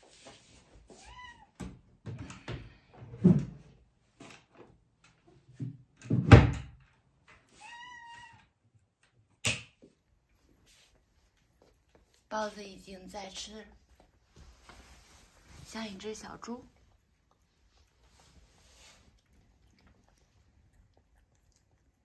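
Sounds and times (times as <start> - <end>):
cat meowing: 1.0 - 1.6, 7.6 - 8.5.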